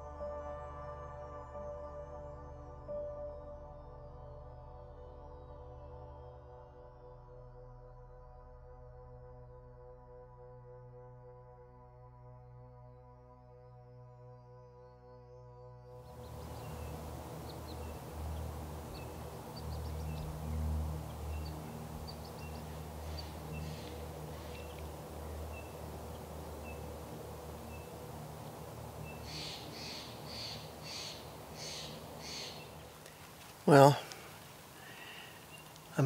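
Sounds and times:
low wind rumble: 0:16.0 - 0:36.0
small bird chirping: 0:16.1 - 0:34.2, 0:34.9 - 0:36.0
loud bird calls: 0:16.1 - 0:36.0.

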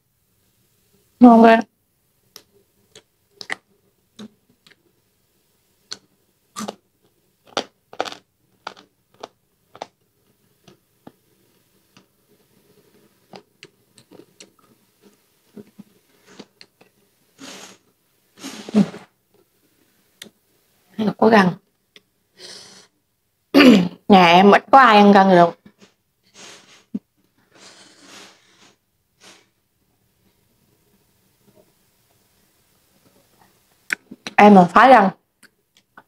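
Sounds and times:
person breathing: 0:17.4 - 0:17.8, 0:22.4 - 0:22.9, 0:26.3 - 0:29.6.

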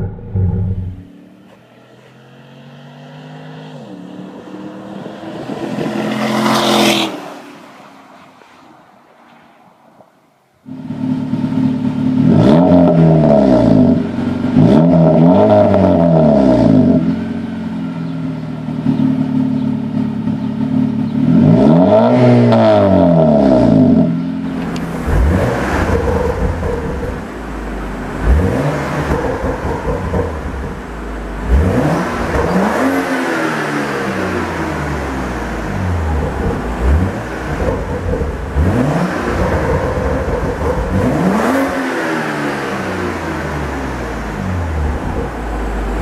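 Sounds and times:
car engine revving: 0:00.0 - 0:07.6, 0:10.7 - 0:18.0, 0:18.6 - 0:46.0
car engine quick revs: 0:24.6 - 0:46.0.

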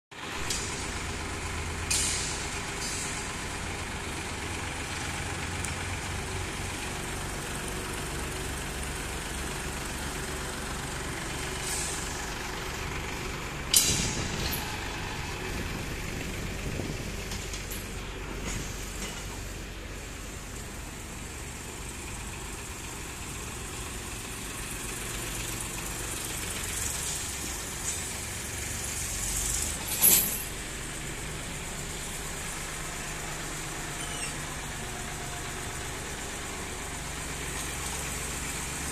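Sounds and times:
tractor diesel engines running: 0:00.1 - 0:38.9.

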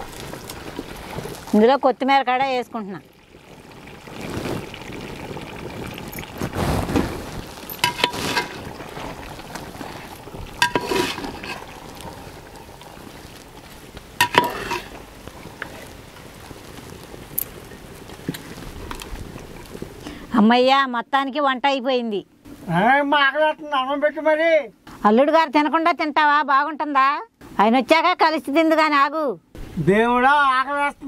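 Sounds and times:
ladle scraping thick curry: 0:06.2 - 0:16.0
ladle clinking against metal pot: 0:07.7 - 0:08.6, 0:10.6 - 0:11.6, 0:14.2 - 0:15.0.

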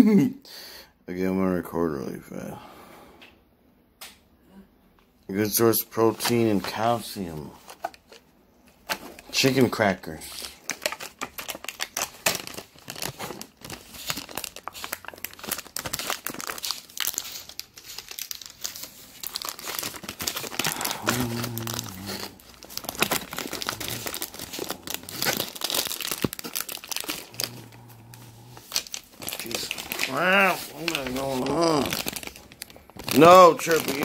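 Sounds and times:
plastic film crinkling and tearing: 0:08.8 - 0:34.0.

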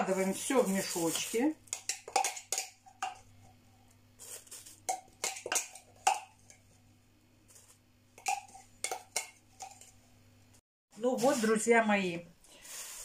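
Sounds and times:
plastic bag rustling: 0:12.5 - 0:13.0.

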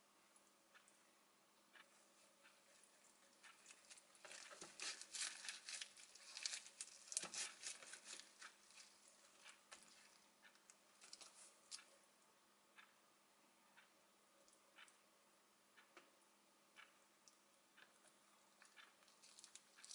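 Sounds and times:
dried seaweed crackling: 0:02.7 - 0:10.2, 0:11.0 - 0:11.8, 0:18.6 - 0:19.9.

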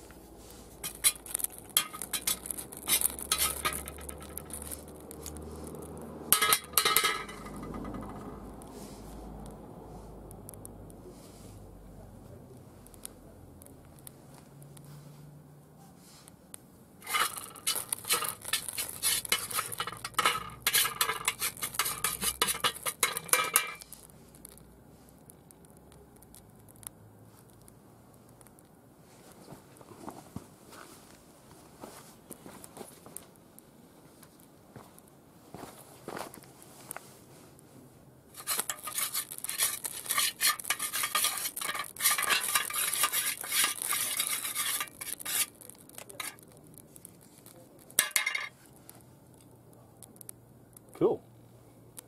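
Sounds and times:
burning metal crackling and popping: 0:00.0 - 0:09.6, 0:10.3 - 0:11.0, 0:12.2 - 0:15.0, 0:16.2 - 0:51.2
metal scraping in a metal tin: 0:00.8 - 0:05.4, 0:06.3 - 0:08.3, 0:17.0 - 0:23.9, 0:38.4 - 0:46.4, 0:48.0 - 0:48.5.

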